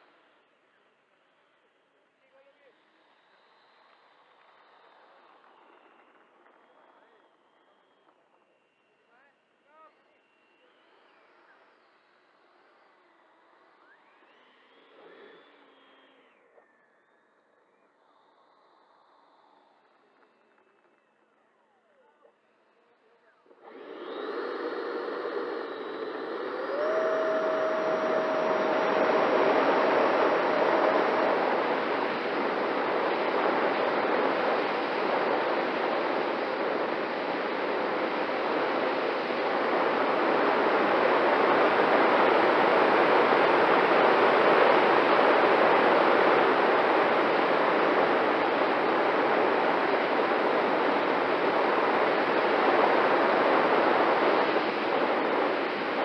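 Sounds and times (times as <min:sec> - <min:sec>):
electric ducted fans whining: 0:23.2 - 0:56.0
rush of airflow: 0:23.5 - 0:56.0.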